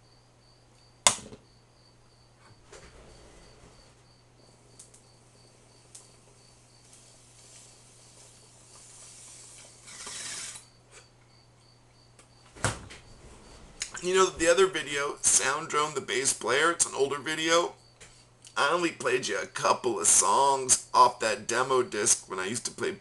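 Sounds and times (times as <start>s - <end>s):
sharp click: 1.0s - 1.4s.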